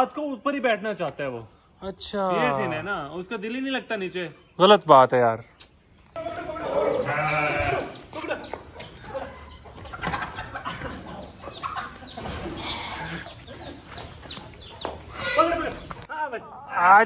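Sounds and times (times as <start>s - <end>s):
sheep and goats bleating: 6.2s - 8.0s, 12.4s - 13.3s
hens clucking: 6.2s - 16.1s
footsteps in dirt: 12.1s - 16.1s.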